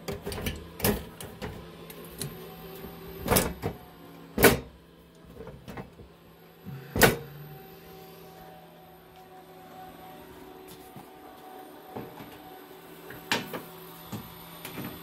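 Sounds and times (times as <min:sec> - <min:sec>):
server humming: 0:00.0 - 0:15.0.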